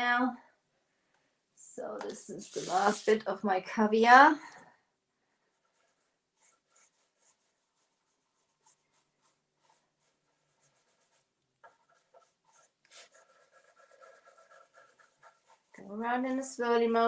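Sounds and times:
scratchy brush strokes: 2.0 - 3.4, 5.3 - 17.0.

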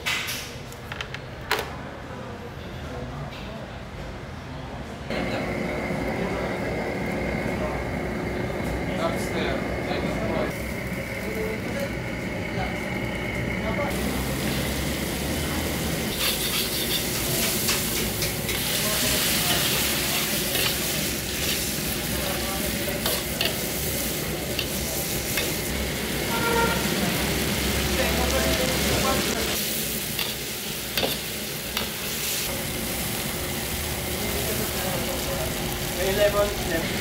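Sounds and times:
prawns sizzling in a wok: 13.9 - 37.0
metal ladle scraping a wok: 16.1 - 18.3.

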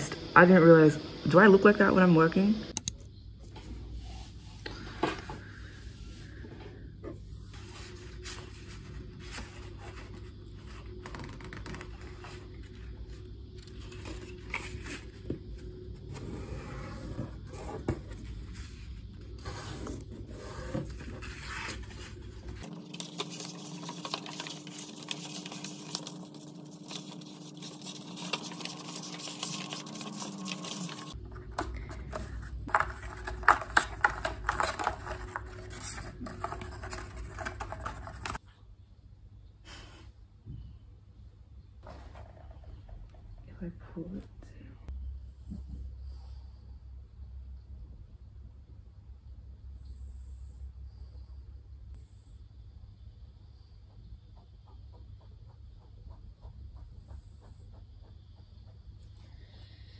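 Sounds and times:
paper sheets rubbing and scraping: 7.5 - 12.9, 13.6 - 15.3, 16.1 - 38.4
paper strip crinkling: 21.2 - 38.4.

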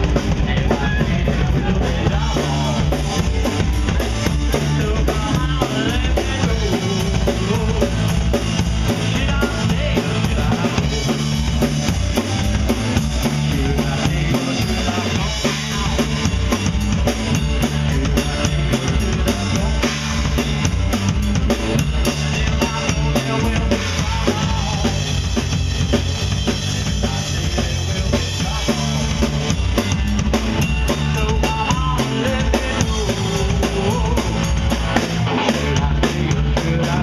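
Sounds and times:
drum kit with cymbals: 0.0 - 37.0
electric bass guitar: 0.0 - 37.0.

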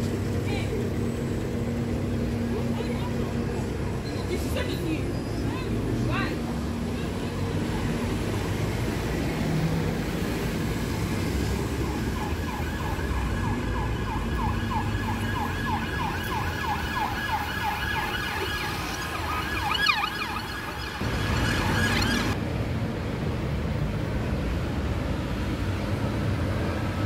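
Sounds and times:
city traffic rumble: 0.0 - 27.0
siren yelping: 11.8 - 22.4.

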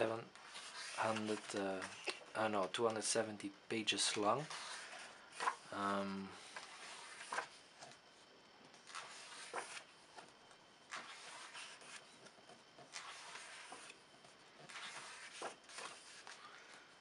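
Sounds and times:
book pages turning: 0.4 - 3.0, 4.0 - 5.6, 6.4 - 8.0, 8.7 - 10.3, 10.9 - 14.0, 14.6 - 16.8.

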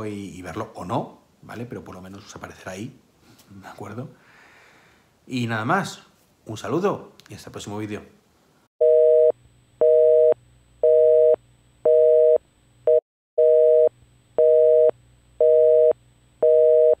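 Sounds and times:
telephone busy signal beeps: 8.8 - 17.0.

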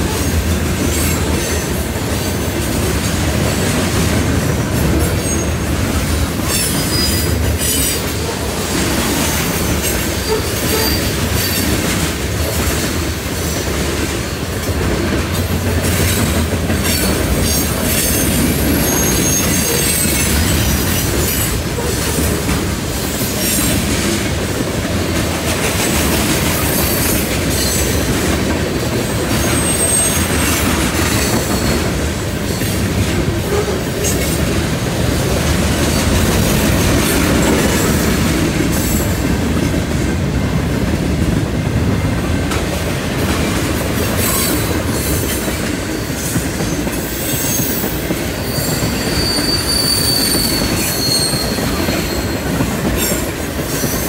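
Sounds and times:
train wheels rumbling on rail: 0.0 - 54.0
wheel squeals: 17.5 - 22.1, 29.4 - 30.4, 47.2 - 53.2.

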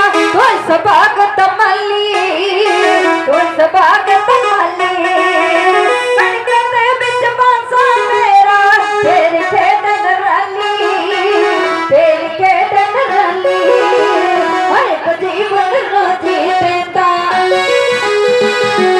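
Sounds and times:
women singing devotional song: 0.0 - 18.0.

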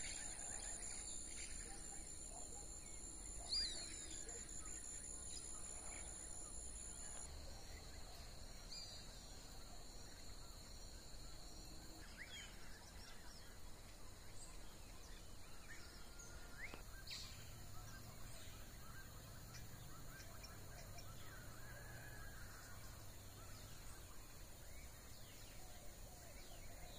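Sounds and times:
bird chirps: 0.0 - 7.9.

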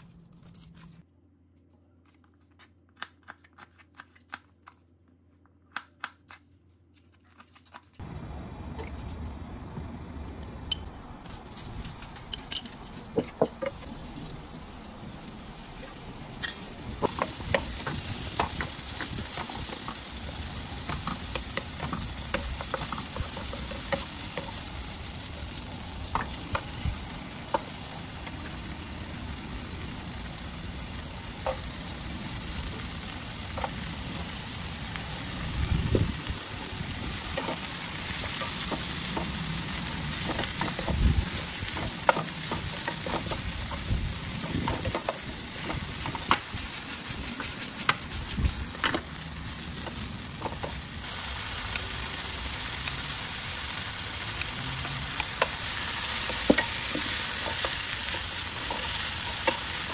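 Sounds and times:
meat and greens sizzling in a pan: 13.7 - 59.9.

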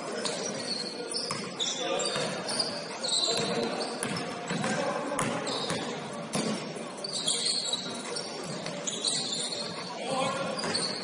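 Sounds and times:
background voices in echoing hall: 0.0 - 11.0
short high squeaks: 0.2 - 4.0, 7.0 - 9.9, 10.5 - 11.0
basketball bouncing on gym floor: 1.2 - 1.5, 2.1 - 2.4, 3.3 - 6.6, 10.1 - 11.0.

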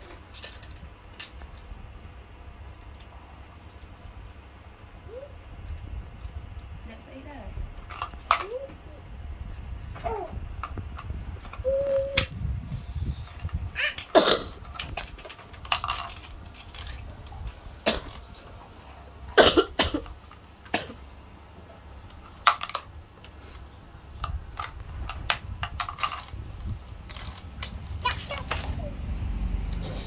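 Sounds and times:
metal tools clicking and knocking: 13.3 - 18.5.

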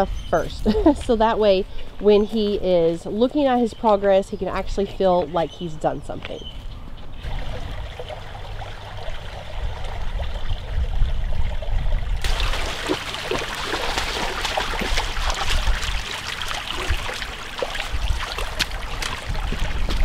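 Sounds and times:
creek water over rocks: 7.2 - 20.0
dog splashing in water: 12.2 - 20.0.

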